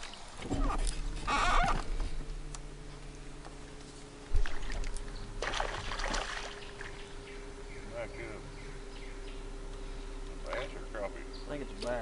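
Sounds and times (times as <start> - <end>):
low hum: 0.0 - 12.0
small splash on water: 4.4 - 7.0.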